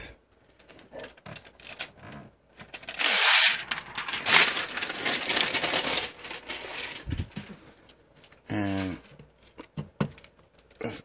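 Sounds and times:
plastic film peeling off: 0.5 - 8.9.

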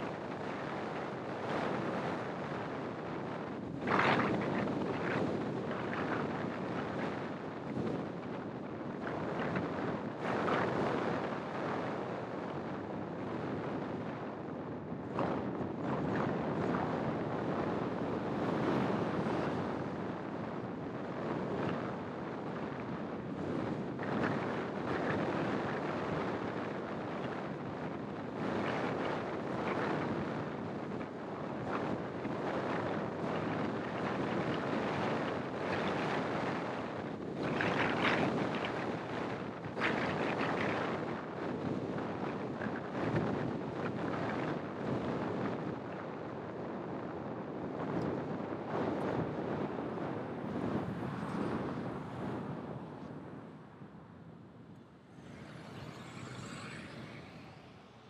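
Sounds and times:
wind buffeting microphone: 0.0 - 58.0
road and traffic noise: 48.2 - 58.0.

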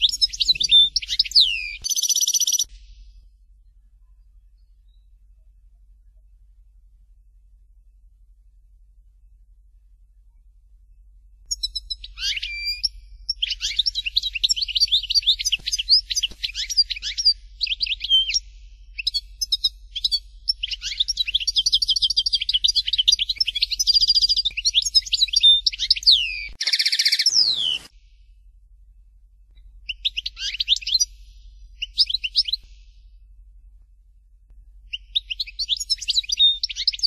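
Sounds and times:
goldfinch singing: 0.0 - 2.7, 11.5 - 27.9, 29.8 - 32.7, 34.9 - 37.0.

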